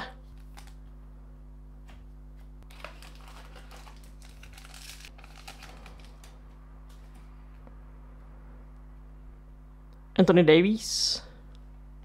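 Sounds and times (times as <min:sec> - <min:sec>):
trading cards scraping: 0:02.7 - 0:06.3.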